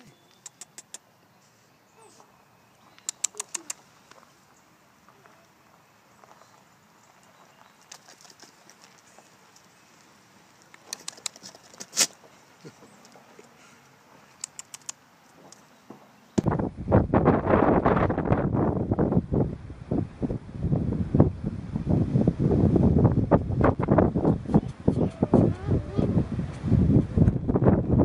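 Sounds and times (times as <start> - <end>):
sharp clicks and taps: 3.0 - 4.2, 14.4 - 15.6.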